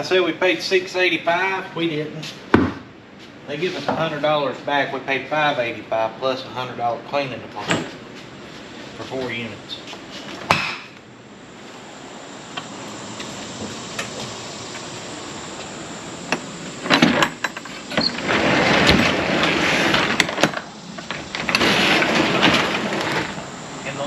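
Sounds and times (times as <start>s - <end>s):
roll-up cargo door rolling: 16.7s - 24.0s.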